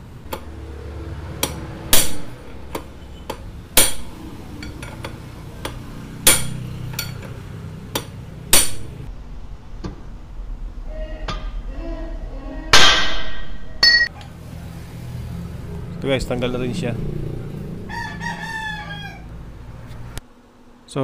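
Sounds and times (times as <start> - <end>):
hammer striking metal: 0.3 - 9.1, 11.2 - 11.7, 12.7 - 14.1.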